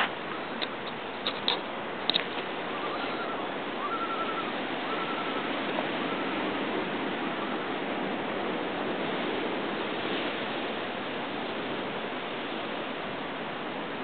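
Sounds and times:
surf on rocky shore: 0.0s - 14.0s
short whistled notes: 2.8s - 5.5s.

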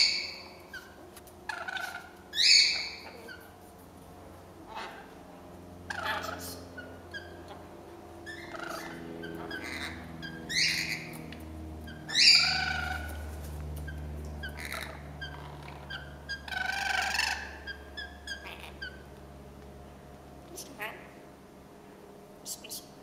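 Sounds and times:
lorikeets screeching: 0.0s - 3.5s, 4.7s - 5.1s, 5.8s - 19.1s
bird chirps: 1.5s - 3.4s, 11.9s - 13.1s.

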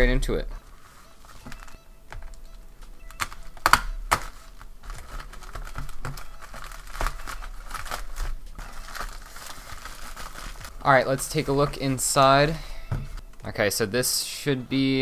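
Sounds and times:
plastic bag crinkling: 3.2s - 13.2s.

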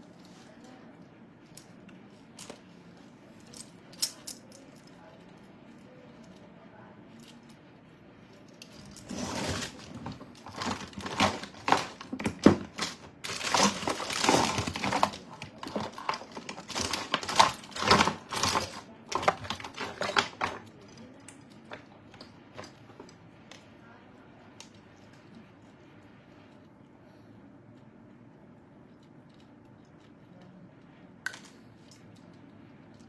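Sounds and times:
hands rummaging small objects: 8.4s - 21.9s.

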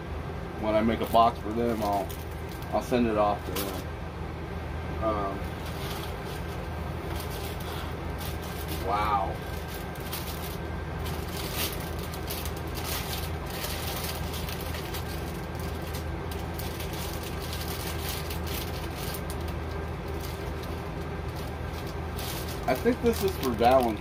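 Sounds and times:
low mechanical hum: 0.0s - 24.0s
plastic wrapper crinkling: 1.0s - 3.8s, 5.5s - 24.0s.

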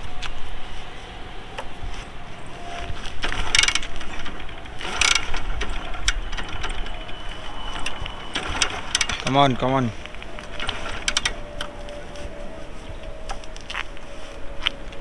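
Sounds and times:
motorcycle kick-start ratcheting: 3.0s - 9.7s, 10.4s - 11.7s.

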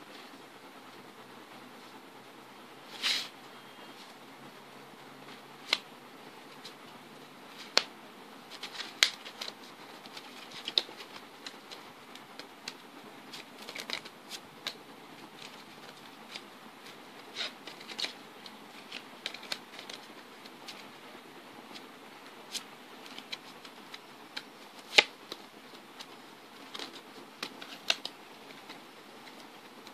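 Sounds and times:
steady hiss: 0.0s - 29.9s
playing cards clicking and tapping: 5.6s - 5.9s, 7.5s - 7.9s, 8.5s - 20.8s, 22.5s - 29.9s.

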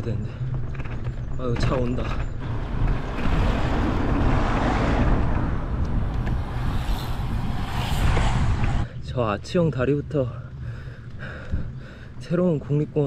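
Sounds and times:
car passing close by: 2.4s - 8.9s.

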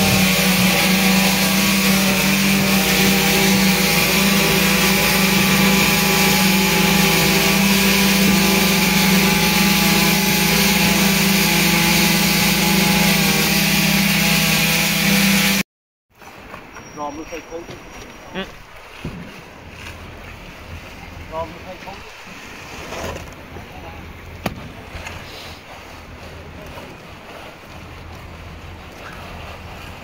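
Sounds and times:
concrete vibrators humming: 0.0s - 15.6s.

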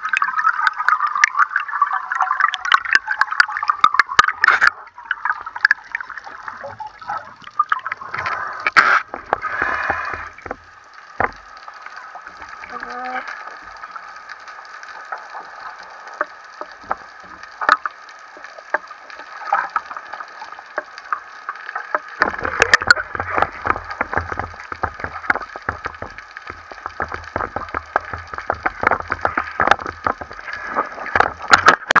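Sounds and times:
water sloshing and splashing: 0.0s - 32.0s
sharp clicks and knocks: 8.1s - 12.6s, 16.1s - 20.0s, 21.7s - 32.0s.

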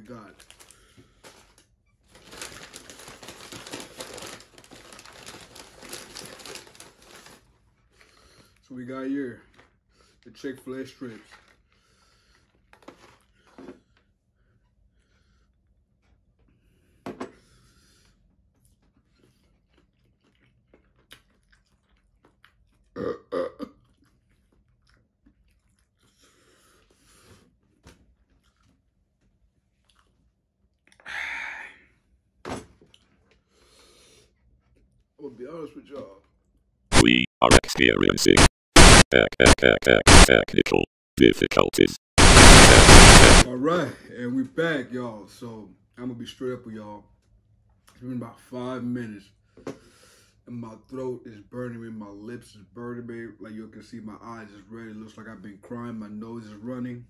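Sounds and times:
paper bag crinkling: 2.1s - 7.4s
man chewing crispy food: 19.1s - 22.9s.

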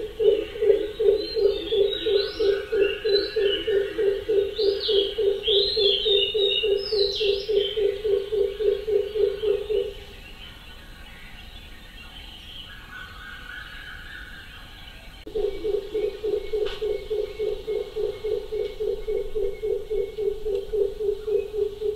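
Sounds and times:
birds chirping and whistling: 0.0s - 21.9s
low pulsing animal call: 15.3s - 21.9s.

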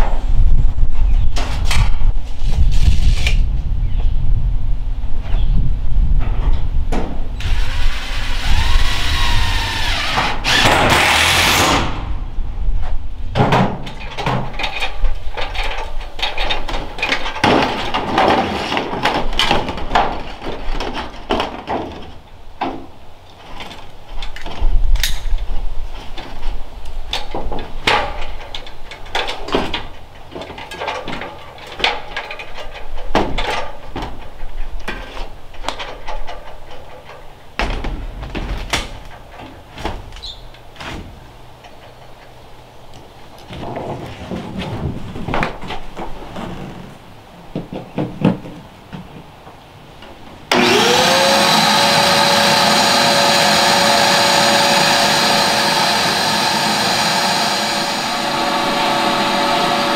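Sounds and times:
power tool whining cutting metal: 7.4s - 11.9s, 50.5s - 59.9s
metal parts knocking and clanking: 13.4s - 22.8s, 27.1s - 40.1s.

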